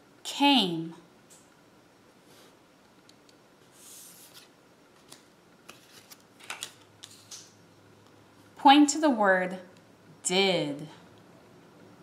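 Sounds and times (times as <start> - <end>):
card sliding on wooden table: 3.7 - 4.5
paper cards tapping and rustling: 4.1 - 7.6.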